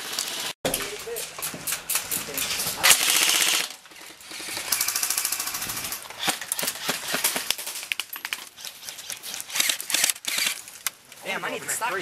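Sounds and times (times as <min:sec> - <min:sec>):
sharp pops and clacks: 0:00.1 - 0:11.0
airsoft rifle full-auto burst: 0:02.8 - 0:07.3, 0:09.5 - 0:10.6.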